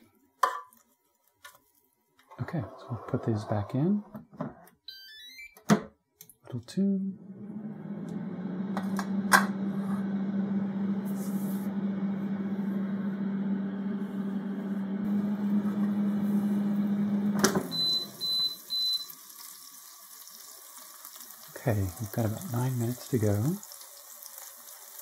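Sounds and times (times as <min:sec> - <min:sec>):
fryer beeps: 0:04.9 - 0:05.6, 0:16.3 - 0:19.5
air fryer fan humming: 0:07.2 - 0:25.0.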